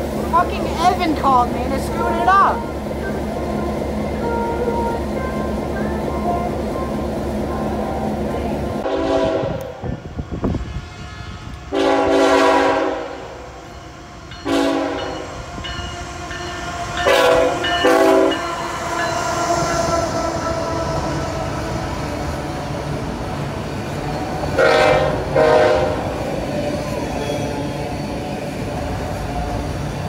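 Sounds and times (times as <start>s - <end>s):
freight train rumble: 0.0s - 30.0s
locomotive air horn blasts: 8.8s - 9.8s, 10.6s - 13.4s, 14.5s - 15.2s, 17.0s - 18.4s, 24.6s - 26.2s.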